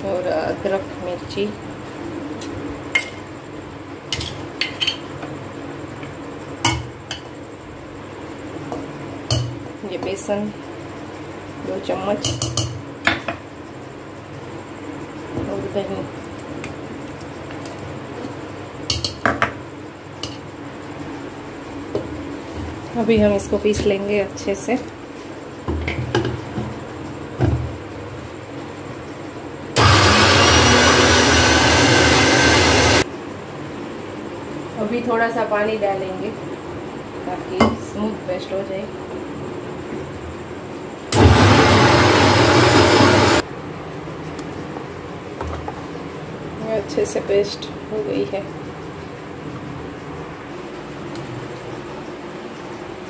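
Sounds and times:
electric mixer grinder running: 29.8 - 33.0, 41.1 - 43.4.

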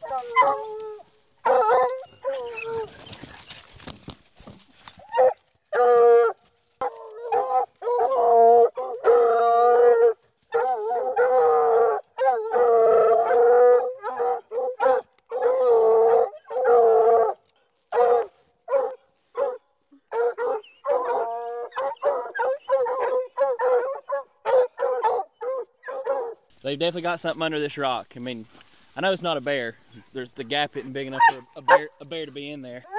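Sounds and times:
hounds baying: 0.0 - 3.6, 5.0 - 26.5, 30.9 - 32.0
hound chop barks: 1.4 - 2.1, 14.0 - 15.6, 17.9 - 26.4.

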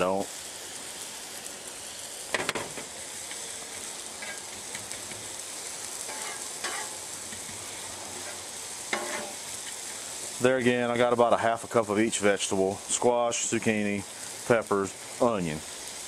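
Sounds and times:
vegetables sizzling on a griddle: 0.0 - 16.0
spatula scraping steel plate: 6.1 - 6.9, 8.1 - 9.4.

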